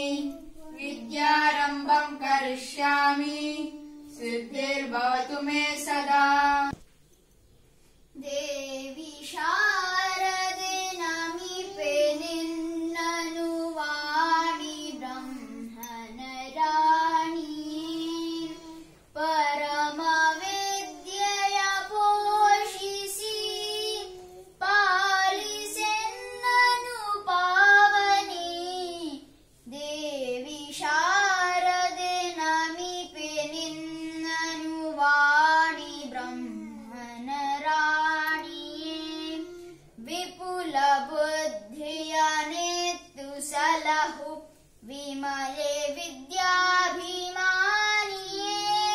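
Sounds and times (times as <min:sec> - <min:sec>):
child singing a hymn: 0:00.0 - 0:06.8, 0:08.1 - 0:48.9.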